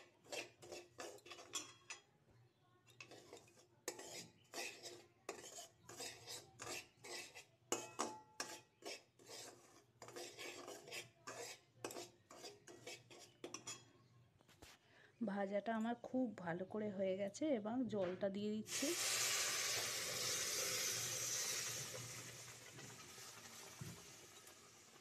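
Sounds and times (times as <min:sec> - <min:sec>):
metal spoon scraping a pan: 0:00.0 - 0:02.1, 0:02.8 - 0:14.1, 0:18.7 - 0:22.6.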